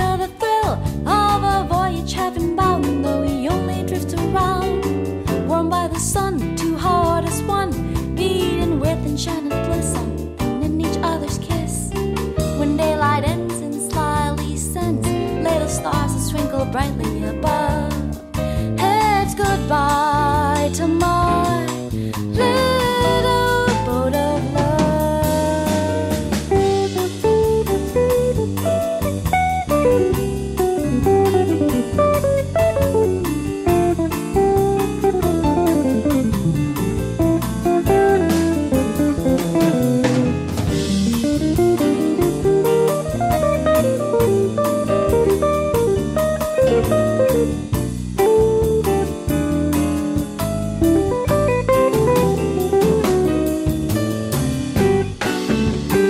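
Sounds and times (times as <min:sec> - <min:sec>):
double bass: 0:00.0 - 0:56.0
drum kit: 0:00.0 - 0:56.0
piano: 0:00.0 - 0:56.0
electric guitar lead: 0:21.5 - 0:56.0.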